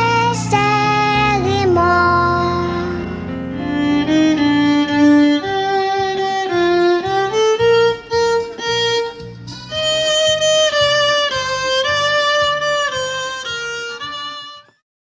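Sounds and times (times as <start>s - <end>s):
instrumental music over low beat: 0.0s - 14.8s.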